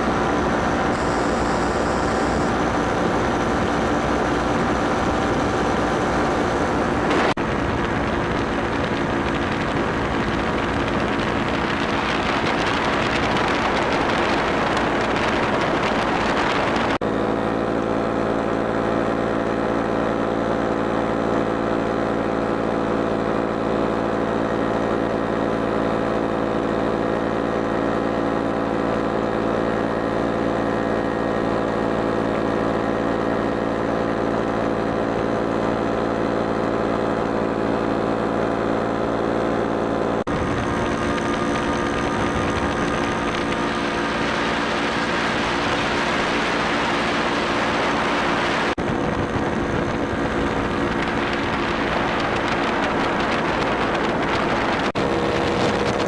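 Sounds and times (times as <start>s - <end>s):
wind rush on microphone: 0.0s - 17.0s, 40.2s - 56.0s
aircraft engine and propeller: 0.0s - 56.0s.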